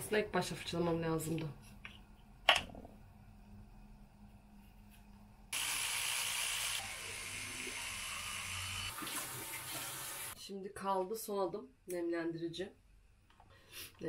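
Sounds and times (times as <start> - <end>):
electric toothbrush buzzing: 5.5 - 10.4.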